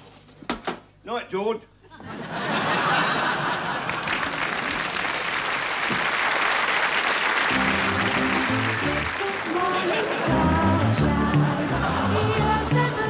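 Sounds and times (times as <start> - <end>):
audience applauding: 2.8 - 13.0
band music: 7.5 - 13.0.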